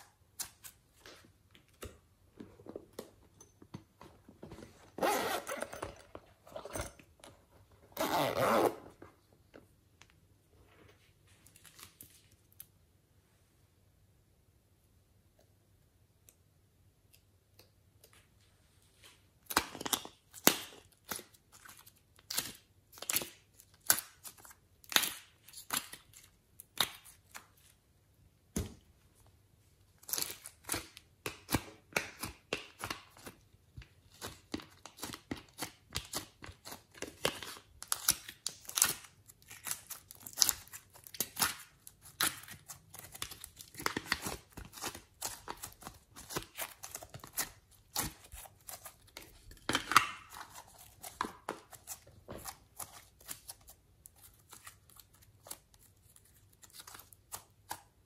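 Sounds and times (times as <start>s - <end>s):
clay tearing: 34.1s - 58.0s.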